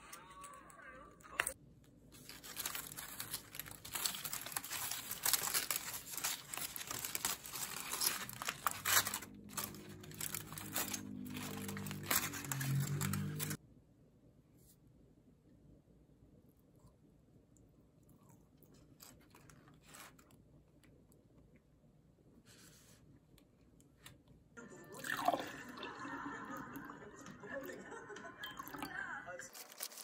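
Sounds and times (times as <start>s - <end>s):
aluminium foil crinkling and tearing: 2.1s - 13.6s, 29.4s - 30.0s.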